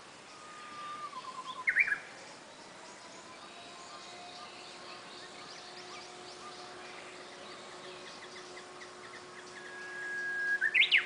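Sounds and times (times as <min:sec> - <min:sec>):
bird singing whistled song: 0:00.3 - 0:11.0.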